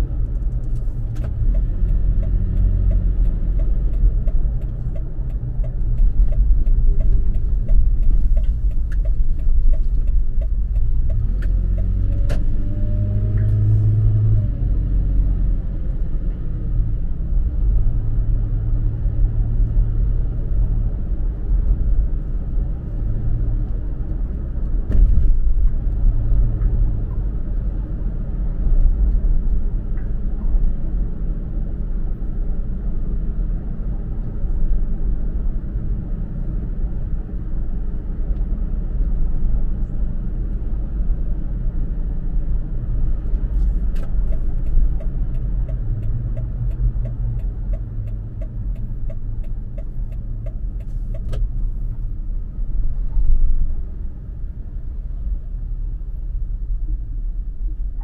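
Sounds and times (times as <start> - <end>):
car engine rumbling: 0.0 - 58.0
regular ticking: 1.4 - 12.2, 44.3 - 51.3.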